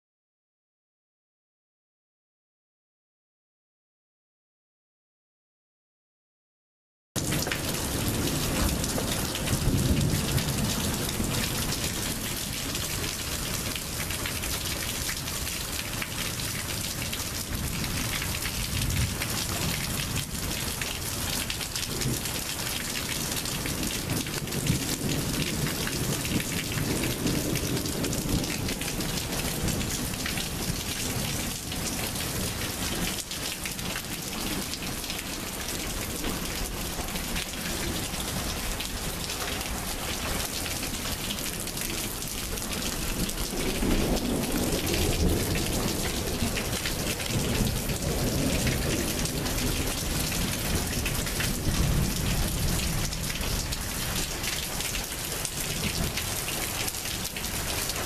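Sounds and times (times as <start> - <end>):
heavy rain: 7.2 - 58.0
thunder rolling: 43.1 - 50.2.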